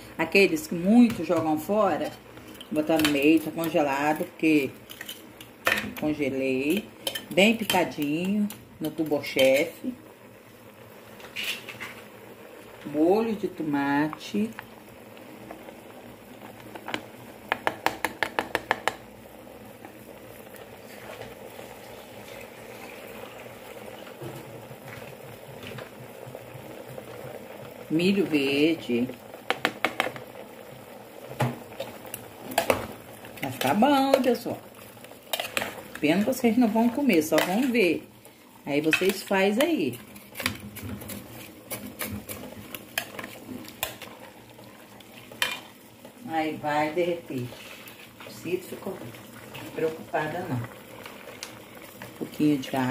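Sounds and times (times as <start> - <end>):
stew cooking in pot: 0.0 - 52.9
metal spoon clinking and scraping pot: 4.9 - 5.9, 7.0 - 7.9, 35.3 - 36.1
metal spoon tapping pot: 17.5 - 19.0.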